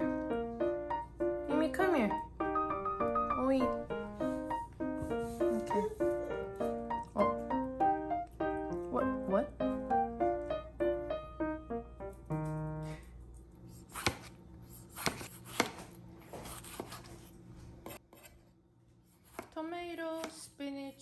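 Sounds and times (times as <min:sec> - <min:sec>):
piano music: 0:00.0 - 0:13.2
knife slicing on cutting board: 0:13.8 - 0:17.2.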